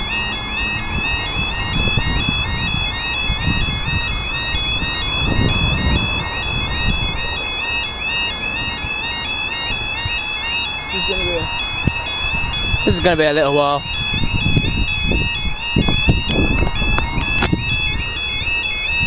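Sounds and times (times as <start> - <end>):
level crossing warning alarm: 0.0 - 19.0.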